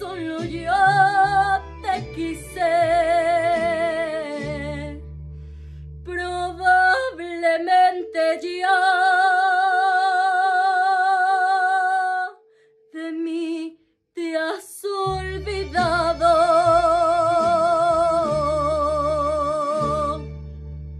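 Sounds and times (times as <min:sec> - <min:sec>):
woman singing with vibrato: 0:00.0 - 0:05.1, 0:06.1 - 0:20.3
instrumental accompaniment with bass: 0:00.0 - 0:07.2, 0:15.1 - 0:20.9.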